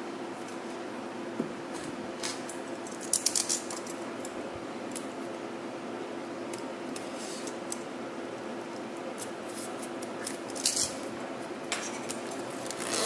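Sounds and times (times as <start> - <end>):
plastic film crackle: 12.6 - 13.0.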